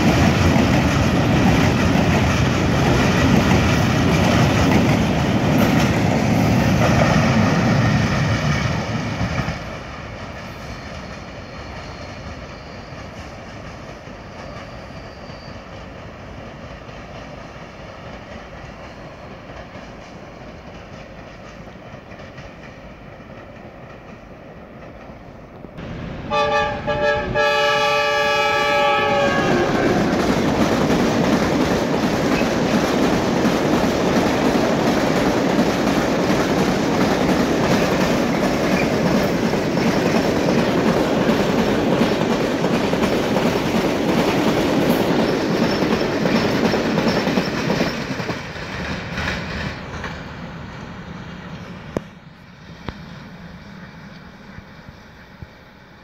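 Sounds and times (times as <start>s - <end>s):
train wheels clattering on rails: 0.0s - 55.5s
distant freight train: 0.0s - 56.0s
train horn chord: 26.3s - 30.1s.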